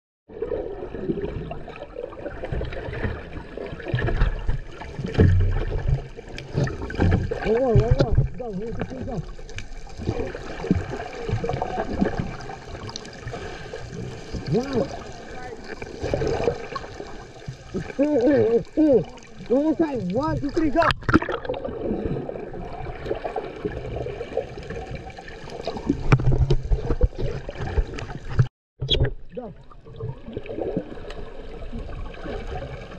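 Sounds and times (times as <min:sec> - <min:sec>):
bubbles crackling: 0:00.3 - 0:32.9
muffled underwater sloshing: 0:00.3 - 0:32.9
swimmers kicking and splashing: 0:01.4 - 0:28.5
low underwater thumps: 0:02.4 - 0:12.4.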